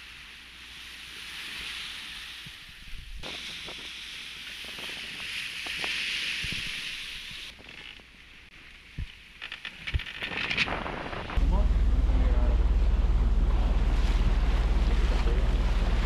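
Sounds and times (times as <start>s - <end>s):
wind: 0.0s - 16.0s
water rushing along hull: 11.2s - 16.0s.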